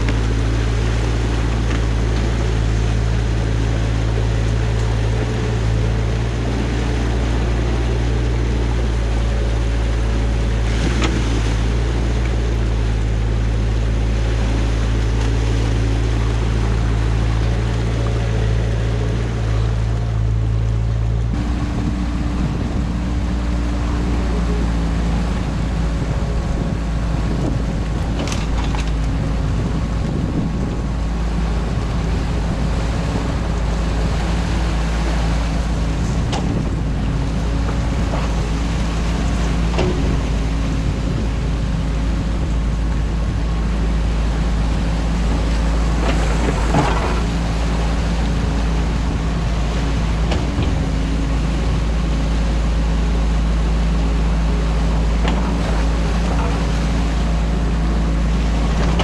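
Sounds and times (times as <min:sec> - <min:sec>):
excavator diesel engine droning: 0:00.0 - 0:59.0.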